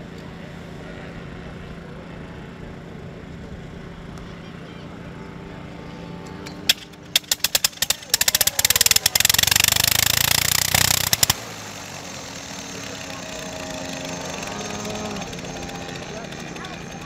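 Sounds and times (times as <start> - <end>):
aircraft engine crackling firing: 6.1 - 17.0.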